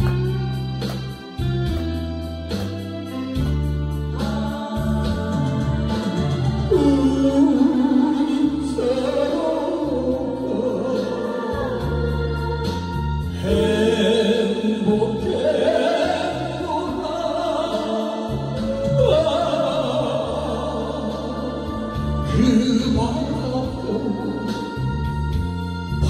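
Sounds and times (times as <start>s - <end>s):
karaoke backing track: 0.0s - 26.0s
man singing into microphone: 4.1s - 11.8s, 13.3s - 25.2s.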